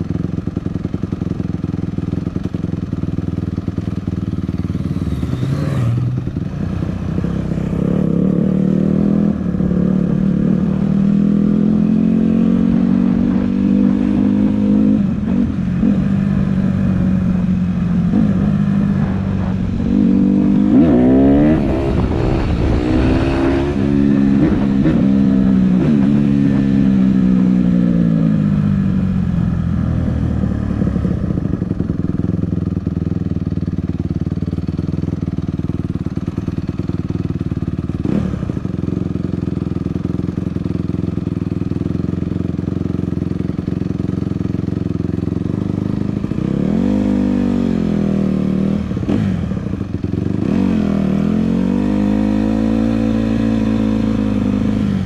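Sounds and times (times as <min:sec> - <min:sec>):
dirt bike engine revving: 0:04.7 - 0:06.4, 0:07.0 - 0:28.2.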